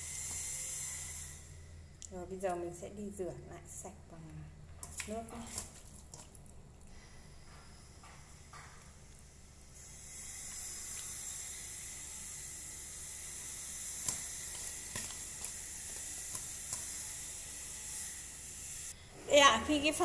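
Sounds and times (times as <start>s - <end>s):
wet squishes and knocks: 4.8s - 6.6s, 14.0s - 17.0s.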